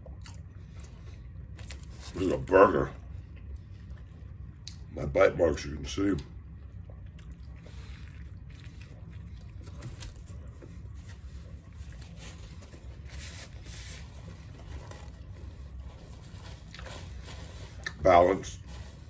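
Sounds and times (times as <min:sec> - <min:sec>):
man chewing food: 0:00.0 - 0:02.0, 0:03.0 - 0:04.9, 0:06.4 - 0:18.0
low steady hum: 0:00.0 - 0:19.0
paper napkin rustling: 0:07.7 - 0:19.0.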